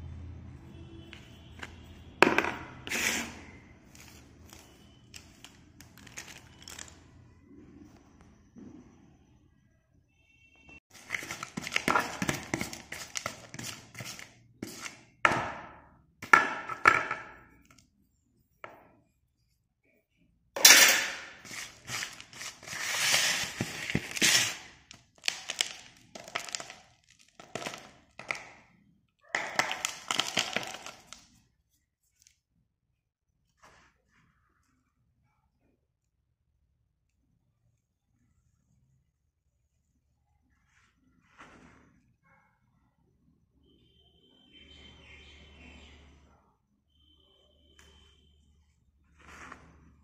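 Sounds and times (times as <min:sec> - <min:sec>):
pencil pieces clattering and crunching: 0:02.2 - 0:07.0, 0:10.9 - 0:15.0, 0:20.6 - 0:28.6, 0:29.4 - 0:31.4.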